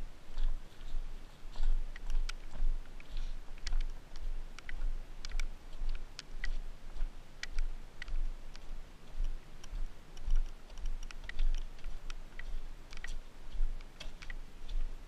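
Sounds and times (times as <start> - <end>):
footsteps on gravel and mud: 0.0 - 15.0.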